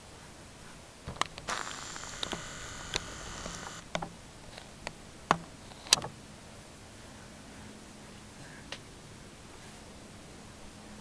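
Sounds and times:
camcorder zoom motor whirring: 1.4 - 3.9.

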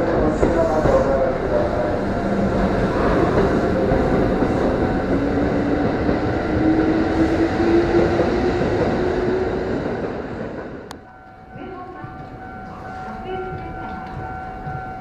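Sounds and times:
train rushing past: 0.0 - 10.9.

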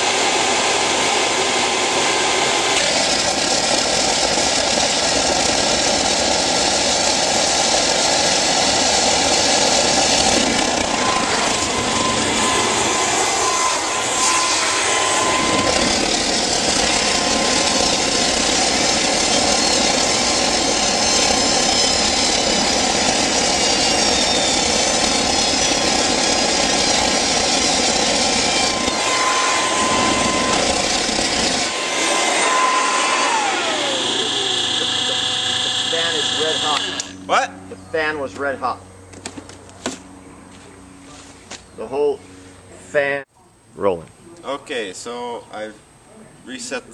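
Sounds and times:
turbojet engine rushing and whining: 0.0 - 43.2.

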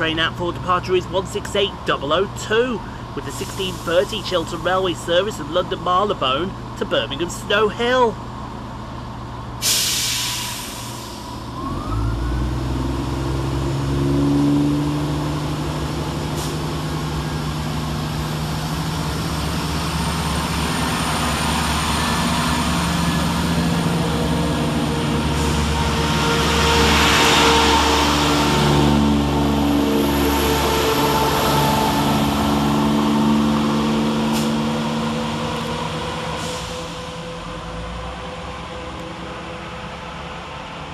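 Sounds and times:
diesel train engines pulling away: 0.0 - 40.9
short hiss: 9.6 - 11.3.

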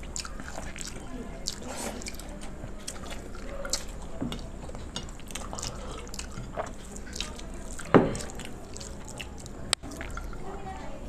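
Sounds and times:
fingers mixing food: 0.0 - 11.0
mouths chewing: 0.0 - 11.0.

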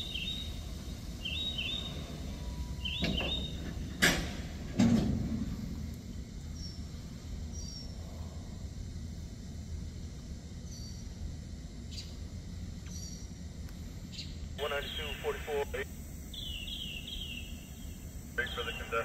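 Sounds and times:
faint steady rumble: 0.0 - 19.0
train couplers clanking: 1.6 - 5.8.

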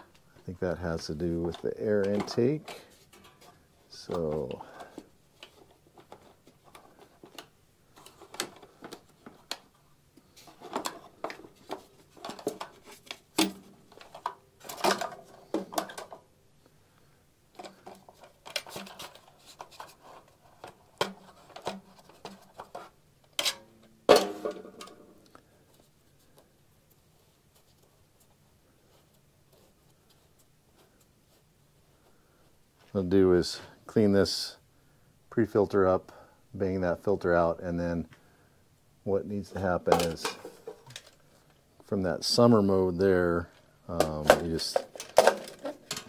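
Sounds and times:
plastic filter cover clicks and rattles: 44.3 - 46.0.

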